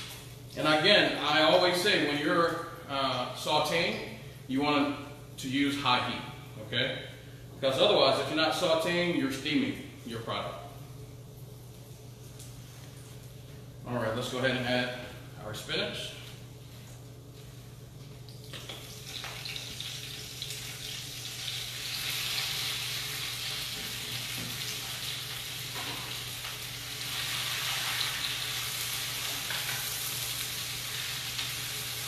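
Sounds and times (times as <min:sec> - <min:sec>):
spinach sizzling in a pan: 0:19.0 - 0:32.0.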